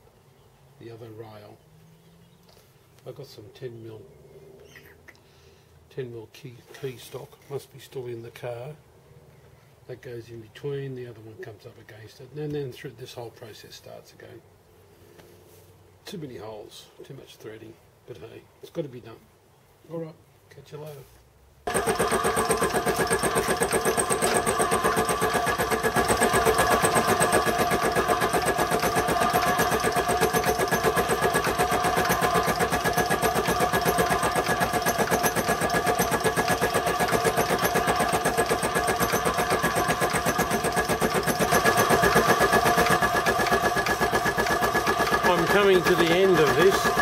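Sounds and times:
milling machine running: 0:21.7 - 0:47.0.

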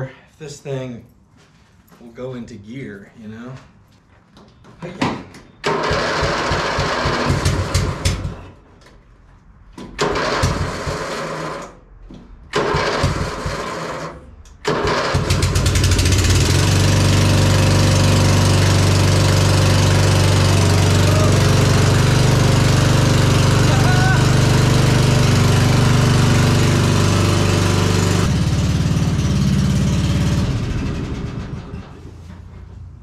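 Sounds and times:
electric starter cranking engine: 0:05.6 - 0:08.4, 0:10.0 - 0:11.8, 0:12.5 - 0:31.9
lawn mower engine running: 0:05.6 - 0:08.4, 0:10.0 - 0:11.7, 0:12.5 - 0:31.9.

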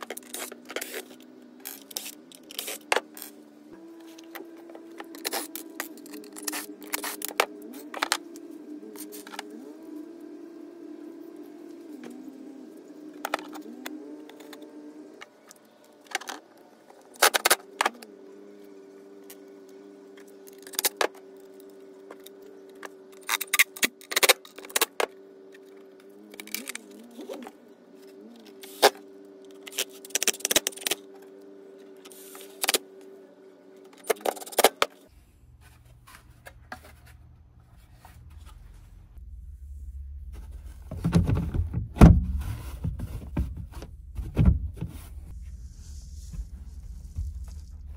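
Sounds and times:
steady low hum: 0:35.1 - 0:47.9
low rumble: 0:39.1 - 0:43.0, 0:43.6 - 0:47.9
plastic and metal clatter: 0:40.5 - 0:45.2.

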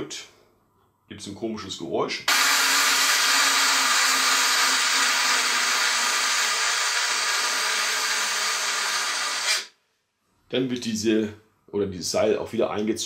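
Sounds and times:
toy hissing whir: 0:02.3 - 0:09.7.

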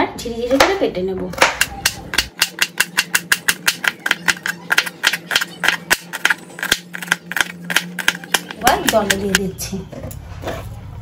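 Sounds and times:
knife chopping: 0:01.4 - 0:09.4.

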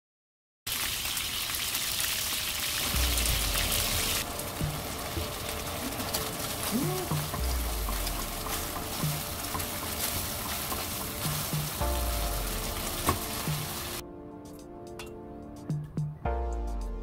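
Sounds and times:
rushing water: 0:00.7 - 0:14.0
sauce sizzling in a wok: 0:00.7 - 0:14.0
background music with low bass: 0:02.8 - 0:17.0.

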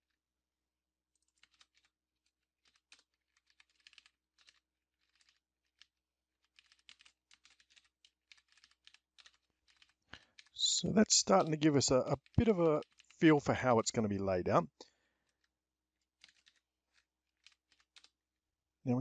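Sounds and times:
computer keyboard typing: 0:01.3 - 0:01.9, 0:02.6 - 0:05.9, 0:06.5 - 0:13.2, 0:16.2 - 0:18.2.

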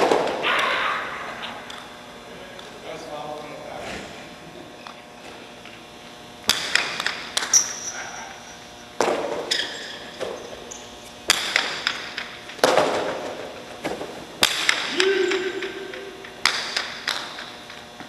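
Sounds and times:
hard ball cracking against walls: 0:06.4 - 0:07.8, 0:11.2 - 0:17.5.

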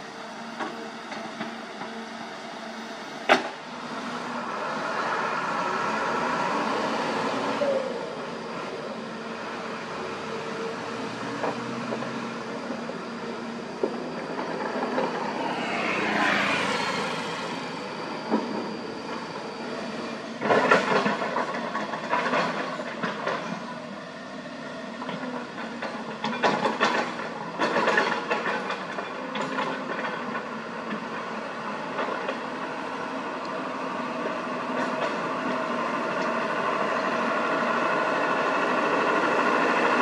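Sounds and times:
excavator engine and hydraulics: 0:00.0 - 0:40.0
engine pitch sweeping down: 0:02.8 - 0:20.4.

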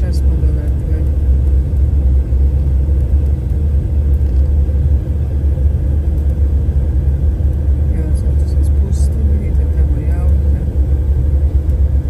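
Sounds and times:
airliner cabin rumble: 0:00.0 - 0:12.0.

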